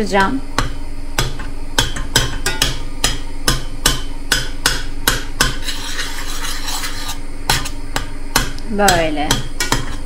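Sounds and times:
mashing and stirring porridge: 4.4s - 10.0s.

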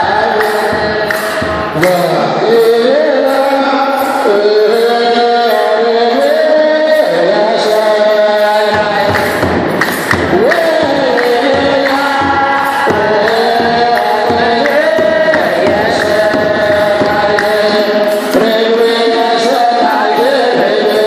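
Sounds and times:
steady beat: 0.0s - 21.0s
priest chanting into microphone: 10.2s - 21.0s.

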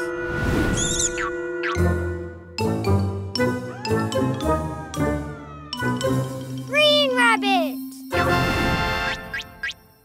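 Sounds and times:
light cartoon music: 0.0s - 10.0s.

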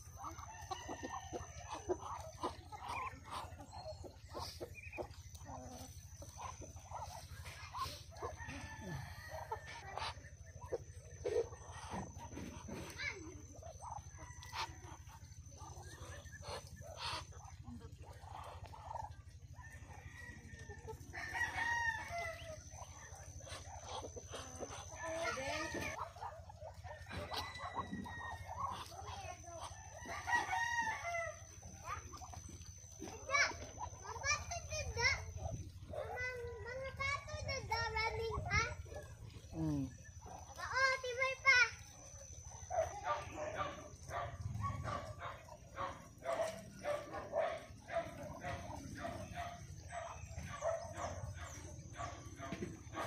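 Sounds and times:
chickens clucking: 0.0s - 53.0s
steady low hum: 0.0s - 53.0s
rooster crowing: 8.2s - 9.9s, 21.2s - 22.6s, 26.9s - 28.8s, 30.0s - 31.4s.

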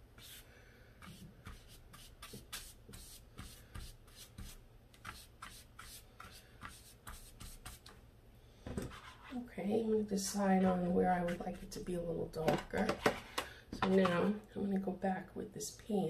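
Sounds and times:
paintbrush swishing on paper: 0.0s - 7.9s, 8.9s - 9.4s.

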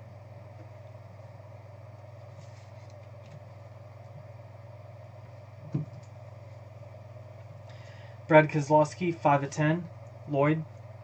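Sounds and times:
low electrical hum: 0.0s - 11.0s
soft knock: 5.6s - 6.0s.

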